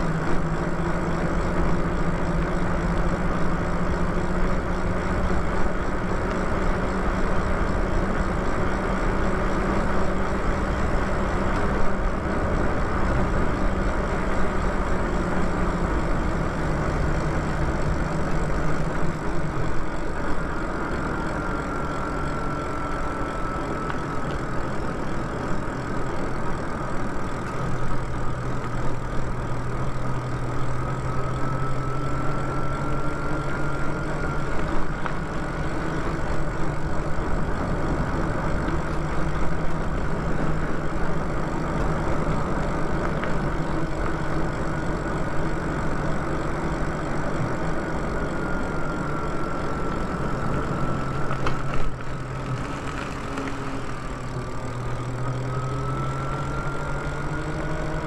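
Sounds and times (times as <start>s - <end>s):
electric motor whine: 0.0s - 58.0s.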